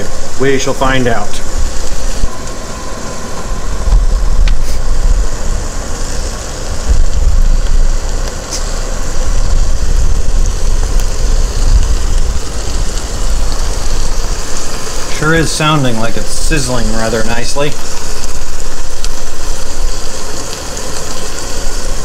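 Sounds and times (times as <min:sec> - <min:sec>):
burger patty sizzling in grease: 0:00.0 - 0:22.0
loud low rumble: 0:01.2 - 0:17.0.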